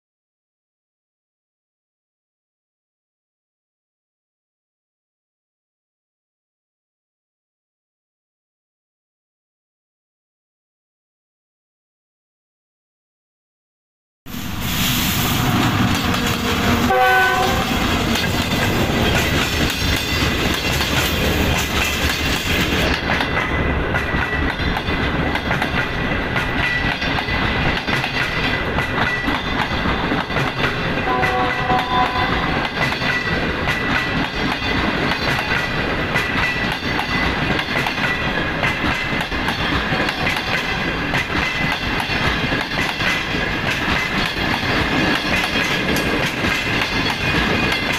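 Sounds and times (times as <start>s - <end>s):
diesel locomotive passing: 14.3s - 47.9s
train horn: 15.4s - 18.3s, 31.0s - 32.7s
wheels clacking on rails: 15.4s - 47.9s.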